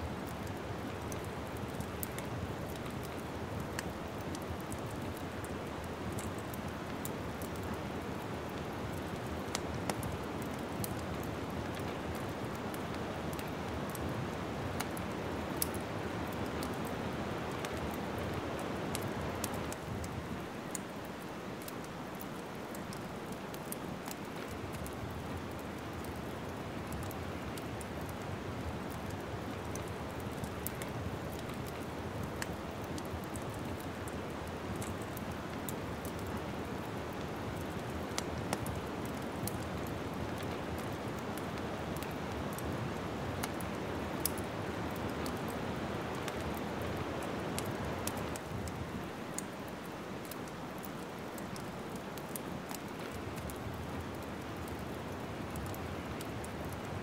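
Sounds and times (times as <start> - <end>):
log fire crackling: 0.0 - 57.0.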